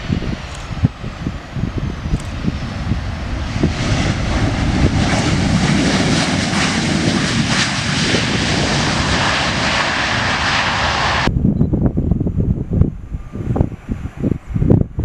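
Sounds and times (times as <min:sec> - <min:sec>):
jet engines roaring: 0:00.0 - 0:11.4.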